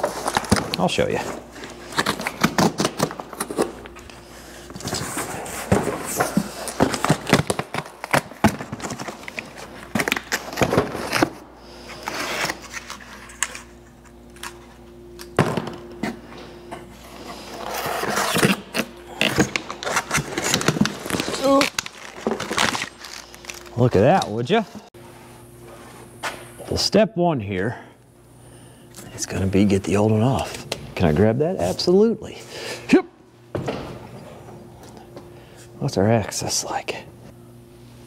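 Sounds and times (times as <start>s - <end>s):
cardboard tearing: 17.8s - 23.7s.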